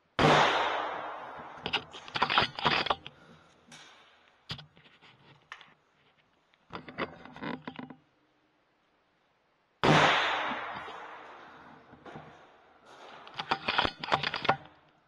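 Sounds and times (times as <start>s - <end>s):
scraping and knocking of rifle handling: 1.3s - 8.0s, 10.6s - 14.9s.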